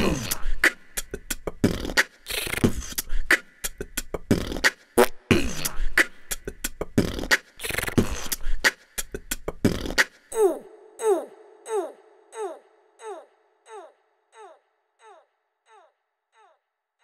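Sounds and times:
beatboxing: 0.0 - 11.3.

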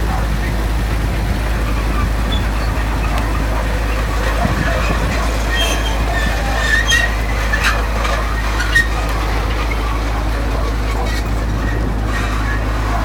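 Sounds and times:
low engine drone: 0.0 - 13.0
short clicks and squeaks: 4.9 - 9.9.

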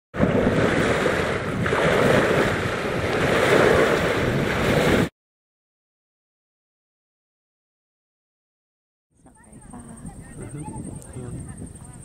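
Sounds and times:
waves washing onto pebbles: 0.2 - 5.1
wind buffeting microphone: 0.2 - 5.1, 9.2 - 12.0.

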